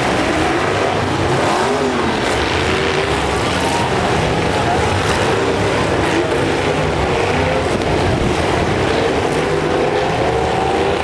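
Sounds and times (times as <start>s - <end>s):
truck engines revving: 0.0s - 11.0s.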